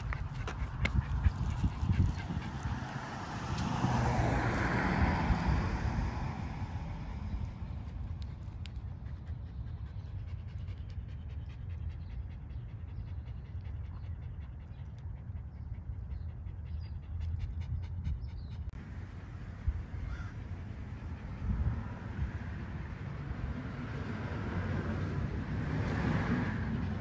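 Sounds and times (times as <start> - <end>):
dog panting: 0.0 - 3.0, 8.4 - 18.8.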